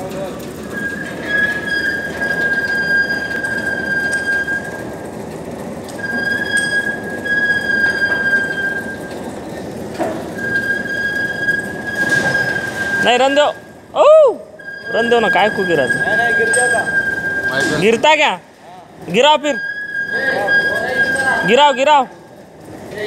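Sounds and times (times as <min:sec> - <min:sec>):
high-pitched metallic squeal: 0:00.6 - 0:05.0, 0:06.0 - 0:09.3, 0:10.4 - 0:13.8, 0:14.6 - 0:18.3, 0:19.1 - 0:22.1.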